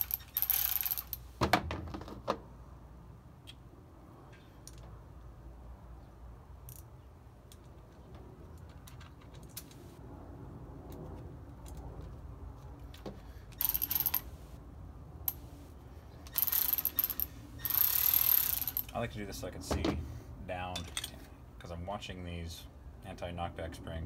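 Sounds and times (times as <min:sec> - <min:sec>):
bolts and nuts clinking: 0:00.0 - 0:01.3, 0:12.8 - 0:14.3, 0:16.2 - 0:19.1, 0:20.7 - 0:21.3
cordless electric ratchet whirring: 0:16.3 - 0:18.8.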